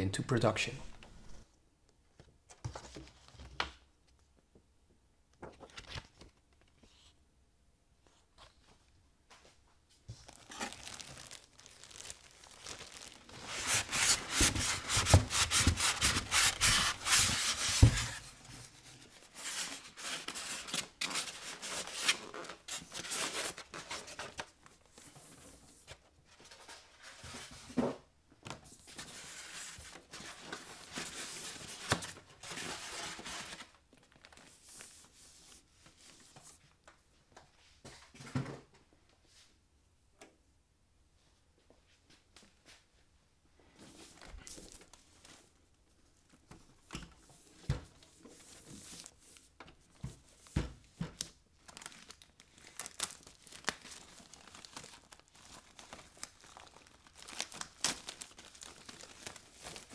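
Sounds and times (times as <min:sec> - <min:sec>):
plastic wrapping crackling: 0:10.1 - 0:17.1, 0:51.6 - 0:59.9
polystyrene foam scraping: 0:10.2 - 0:18.3.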